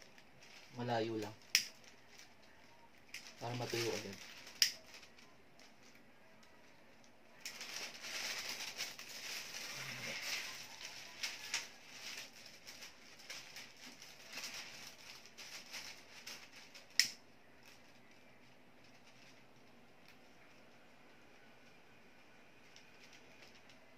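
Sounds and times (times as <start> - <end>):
tissue paper rustling and crinkling: 0.0 - 20.8, 22.7 - 23.9.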